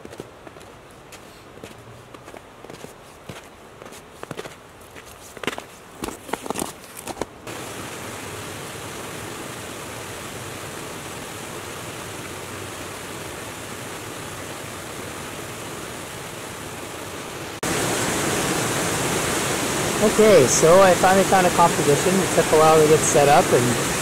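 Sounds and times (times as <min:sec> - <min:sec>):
footsteps on snow: 0:00.0 - 0:07.4
waterfall rushing over rocks: 0:07.5 - 0:24.0.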